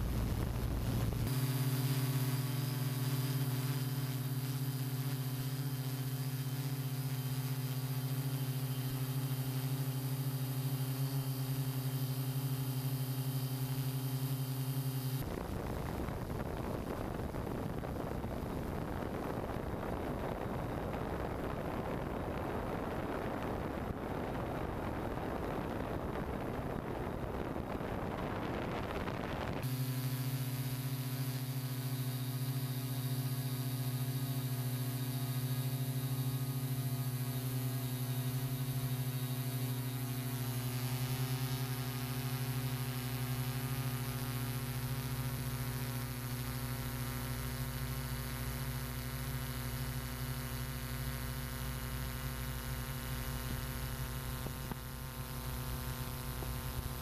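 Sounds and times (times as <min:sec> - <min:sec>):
broad rushing noise: 0:00.0 - 0:02.4
drone propellers humming: 0:00.0 - 0:47.5, 0:52.0 - 0:57.0.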